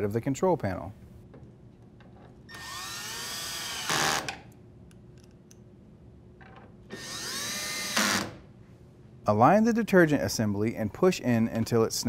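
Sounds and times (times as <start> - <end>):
cordless drill driving screw: 2.5 - 4.4, 6.9 - 8.4.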